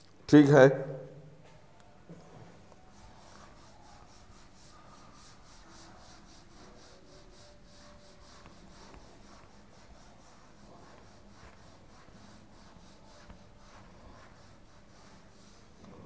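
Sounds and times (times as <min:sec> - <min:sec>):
duster wiping a whiteboard: 0:02.2 - 0:16.0.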